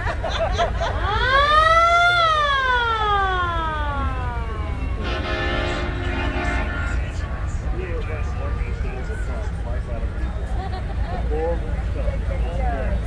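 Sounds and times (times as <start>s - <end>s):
vehicles rumbling: 0.0s - 13.0s
wind: 0.0s - 13.0s
siren wailing: 1.0s - 10.2s.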